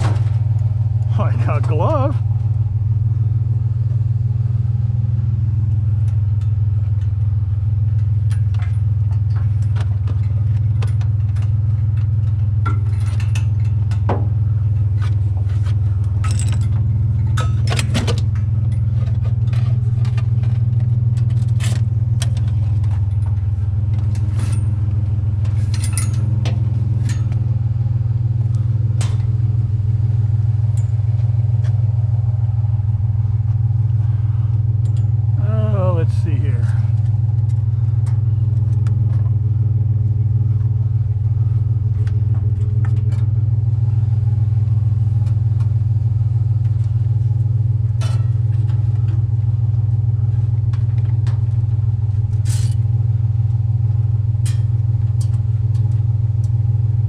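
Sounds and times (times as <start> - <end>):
truck engine and road drone: 0.0 - 57.0
sharp rattles and clicks: 5.7 - 29.6.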